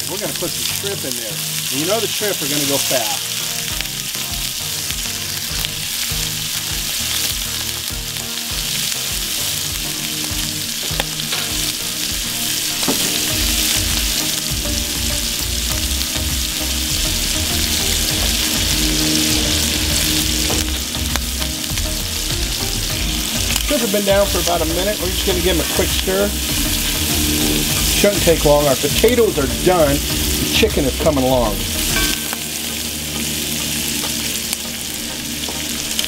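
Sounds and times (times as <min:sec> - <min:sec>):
shrimp sizzling in oil: 0:00.0 - 0:36.0.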